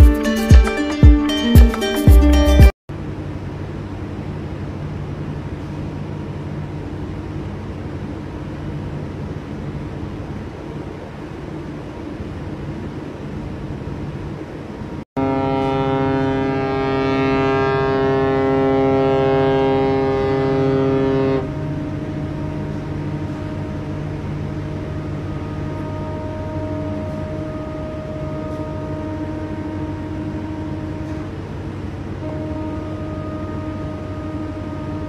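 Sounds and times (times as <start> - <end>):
ship's horn blast: 15.2 - 35.0.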